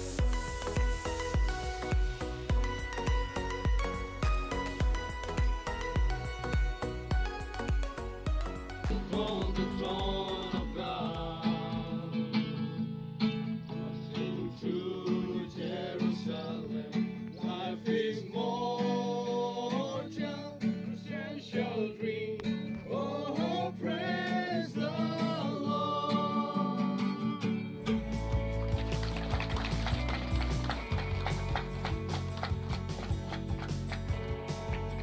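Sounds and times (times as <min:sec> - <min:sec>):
strummed acoustic guitar: 0:00.0 - 0:35.0
group singing worship song: 0:08.9 - 0:12.2, 0:14.3 - 0:27.4.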